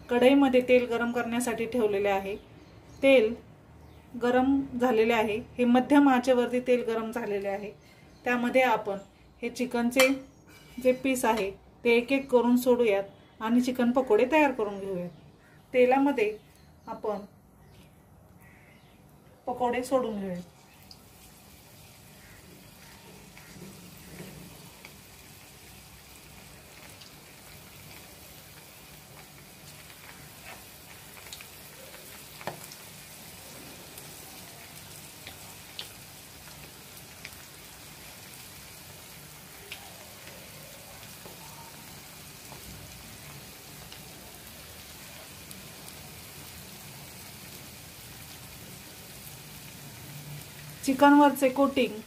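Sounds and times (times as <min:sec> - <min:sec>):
chicken deep-frying in oil: 0:19.6 - 0:52.0.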